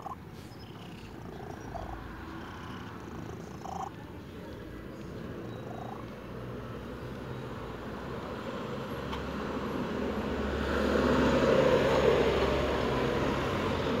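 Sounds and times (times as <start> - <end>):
cat purring: 0.0 - 6.1.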